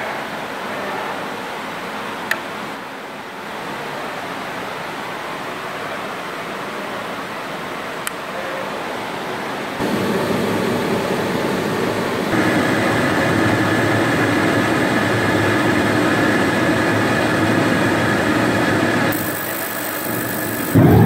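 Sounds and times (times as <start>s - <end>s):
burner blower rushing: 9.8s - 21.0s
steady whine: 9.8s - 21.0s.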